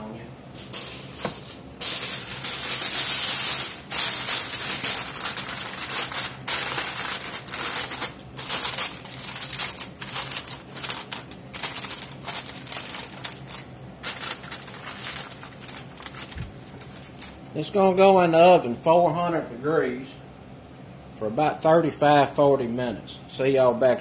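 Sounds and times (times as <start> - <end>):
aluminium foil crinkling: 0.6 - 17.5.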